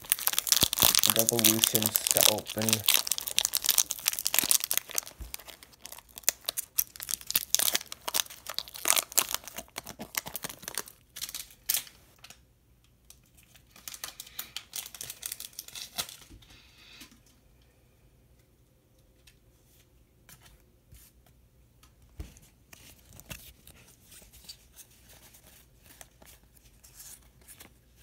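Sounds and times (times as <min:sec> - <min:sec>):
foil wrapper crinkling and tearing: 0:00.0 - 0:12.4, 0:13.3 - 0:16.3.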